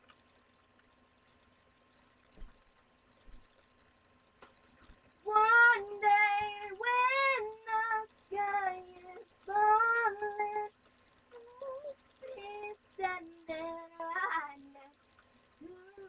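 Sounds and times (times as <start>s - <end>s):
child singing: 11.4s - 14.9s.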